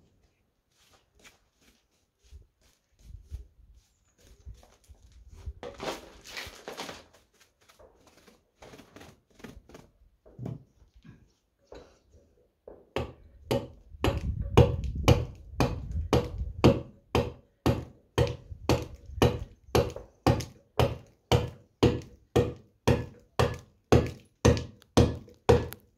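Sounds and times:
mallet striking chisel into stone: 0:13.0 - 0:25.8.

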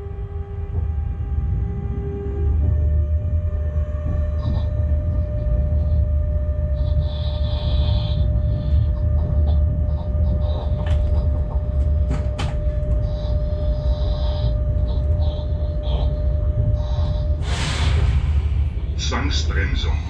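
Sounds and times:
locomotive cab rumble: 0:08.2 - 0:20.0.

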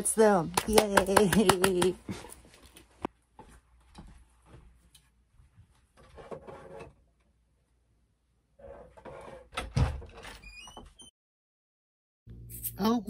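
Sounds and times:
door squeaking: 0:09.6 - 0:11.1.

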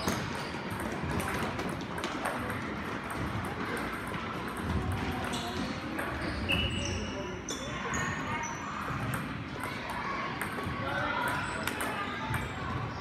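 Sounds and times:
table tennis balls clicking: 0:00.0 - 0:06.2.

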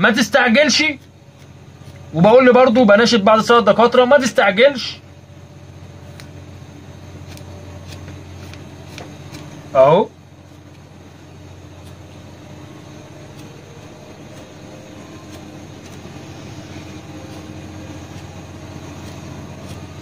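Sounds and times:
low background hum: 0:00.0 - 0:20.0
small scissors snipping fur: 0:00.8 - 0:02.1, 0:06.0 - 0:06.4, 0:07.2 - 0:09.6, 0:11.7 - 0:12.2, 0:13.0 - 0:20.0.

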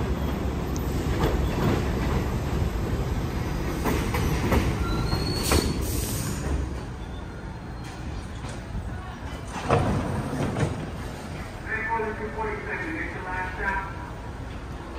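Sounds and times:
train wheels rumbling on rail: 0:00.0 - 0:14.9
high wheel squeal: 0:04.8 - 0:06.3.

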